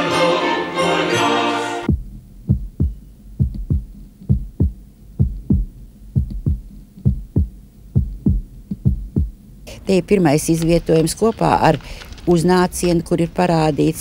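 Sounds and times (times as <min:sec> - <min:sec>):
heartbeat thumps: 0:01.9 - 0:10.0.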